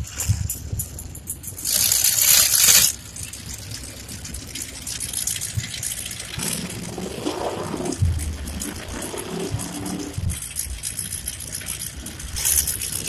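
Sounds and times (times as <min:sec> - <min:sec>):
mud and water splashing: 0:01.6 - 0:03.0.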